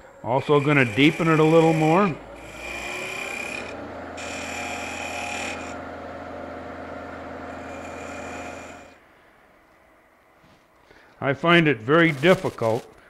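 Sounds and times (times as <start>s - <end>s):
wood lathe humming: 0.0s - 9.2s
scraper cutting wood: 0.5s - 5.8s.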